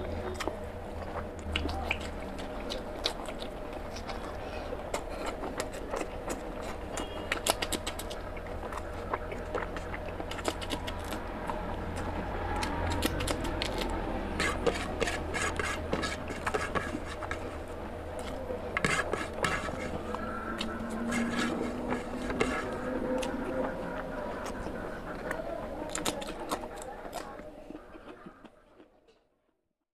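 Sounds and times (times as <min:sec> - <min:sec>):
chewing and mouth clicks: 0:00.0 - 0:15.4, 0:18.2 - 0:29.2
low hum: 0:00.0 - 0:26.8
fingers scraping a plate: 0:14.3 - 0:17.6, 0:18.8 - 0:23.4.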